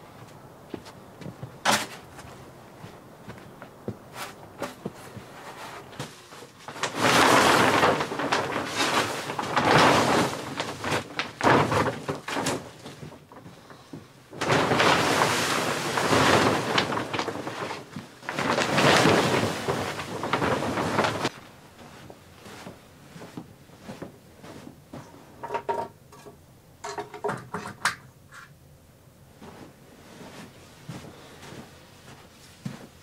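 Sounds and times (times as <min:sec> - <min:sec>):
plastic sheet crinkling dragged: 0:04.1 - 0:25.4, 0:29.4 - 0:33.0
small knocks: 0:22.5 - 0:28.5.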